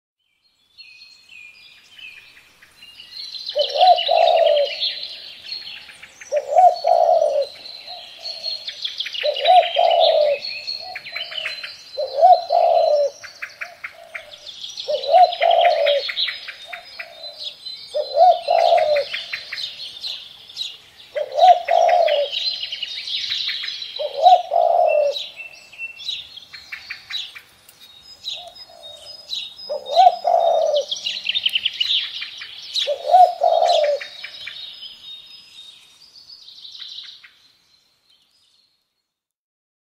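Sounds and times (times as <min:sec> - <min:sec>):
songbirds chirping: 0:00.2 - 0:39.3
dove cooing: 0:03.5 - 0:05.2, 0:06.3 - 0:20.2, 0:21.1 - 0:22.6, 0:24.0 - 0:25.4, 0:28.4 - 0:29.1, 0:29.7 - 0:31.5, 0:32.8 - 0:34.3.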